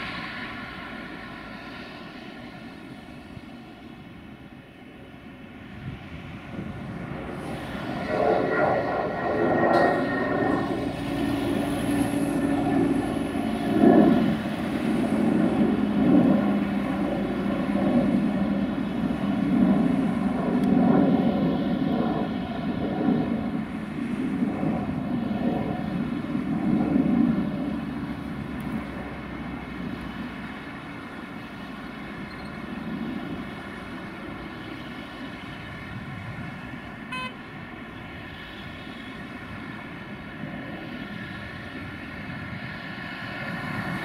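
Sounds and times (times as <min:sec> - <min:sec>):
jet airliner climbing: 0:05.2 - 0:38.3.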